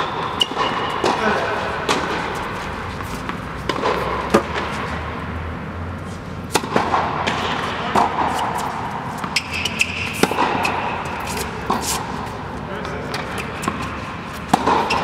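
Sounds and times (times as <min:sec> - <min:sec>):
rackets striking tennis balls: 0:00.0 - 0:05.1, 0:06.4 - 0:15.0
tennis balls bouncing on court: 0:00.0 - 0:05.4, 0:06.4 - 0:15.0.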